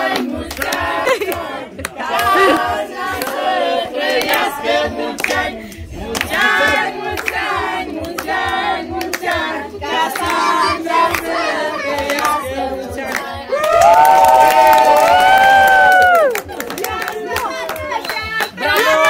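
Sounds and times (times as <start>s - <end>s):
group singing birthday song: 0.0s - 14.2s, 16.2s - 19.0s
hands clapping: 0.1s - 2.6s, 3.2s - 3.4s, 4.1s - 4.5s, 5.2s - 5.4s, 6.2s - 8.4s, 12.0s - 12.4s, 13.1s - 19.0s.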